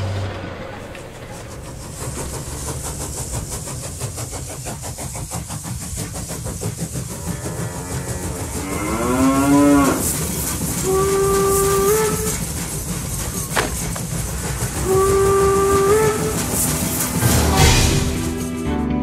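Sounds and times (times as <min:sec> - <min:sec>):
train rumbling: 0:00.0 - 0:19.0
steam locomotive whistle: 0:07.0 - 0:18.6
cow mooing: 0:07.4 - 0:10.0.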